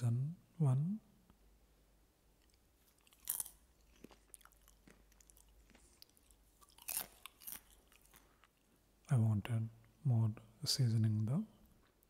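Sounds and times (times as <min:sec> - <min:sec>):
person chewing crunchy popcorn: 0:02.4 - 0:08.7.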